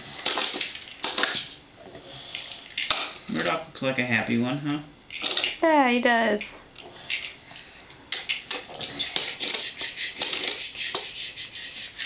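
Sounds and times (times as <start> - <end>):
plastic toy train clicking: 8.2 - 11.4.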